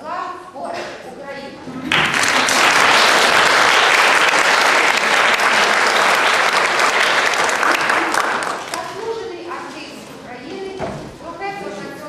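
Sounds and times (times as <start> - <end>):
audience applauding: 1.9 - 8.8.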